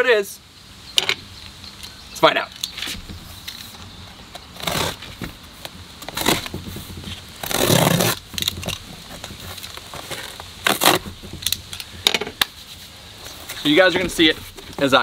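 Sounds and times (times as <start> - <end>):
box cutter slicing tape: 4.6 - 5.0, 6.1 - 6.5, 7.4 - 8.8, 9.6 - 11.6.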